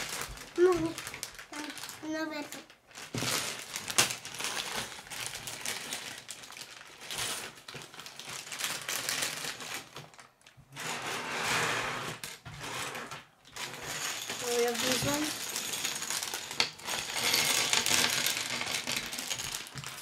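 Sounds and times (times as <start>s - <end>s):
plastic bags crinkling: 0.0s - 11.1s, 12.1s - 20.0s
plastic pieces clicking and rattling: 12.1s - 20.0s.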